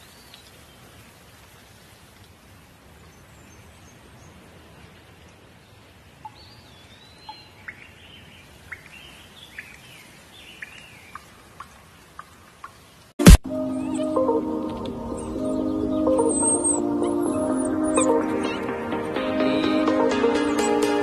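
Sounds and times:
light rain pattering: 0.0 - 13.4
birds calling: 5.8 - 12.9, 13.6 - 21.0.

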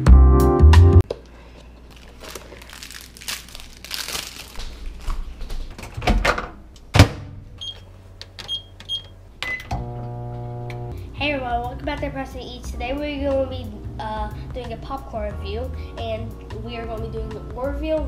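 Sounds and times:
music: 0.0 - 1.0, 10.4 - 18.0
microwave door opening and shutting: 5.7 - 7.8.

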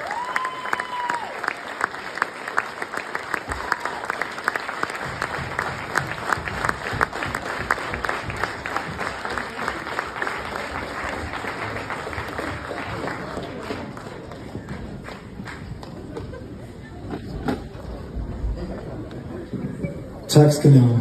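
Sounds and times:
loud nearby hand claps: 0.0 - 16.3
audience applauding: 0.0 - 16.8.

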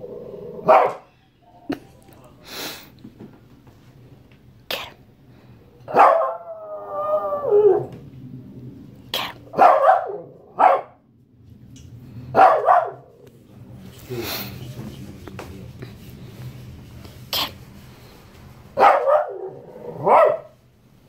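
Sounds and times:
dog barking: 0.6 - 1.1, 5.9 - 6.6, 9.5 - 11.0, 12.3 - 13.1, 18.8 - 20.6.

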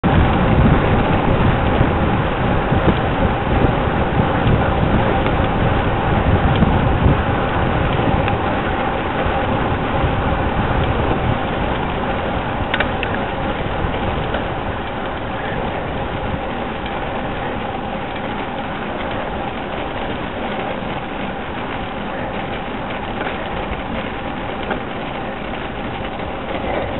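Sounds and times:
tyre noise on tarmac: 0.0 - 26.9
wind noise: 0.0 - 26.9.

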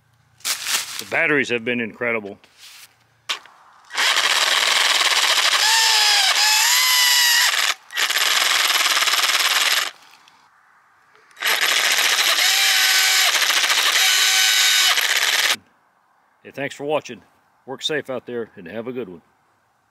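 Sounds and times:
reciprocating saw cutting wood: 3.3 - 10.0, 11.3 - 15.6.

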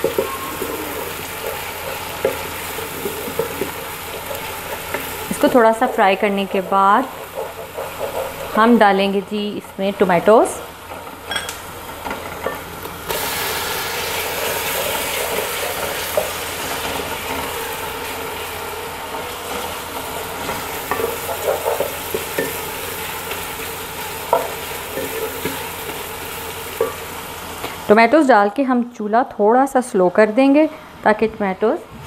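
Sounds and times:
tomatoes sizzling in hot oil: 0.0 - 28.6
wooden spatula scraping a pot: 6.5 - 8.8.

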